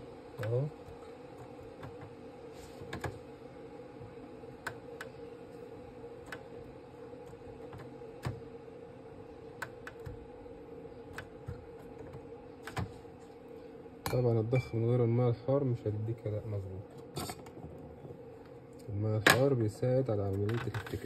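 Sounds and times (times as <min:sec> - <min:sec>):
steady low hum: 0:00.0 - 0:21.0
light clicks and taps in printer: 0:00.4 - 0:02.2, 0:02.8 - 0:03.2, 0:04.6 - 0:05.2, 0:06.2 - 0:06.5, 0:07.2 - 0:08.5, 0:09.5 - 0:10.2, 0:11.1 - 0:13.0.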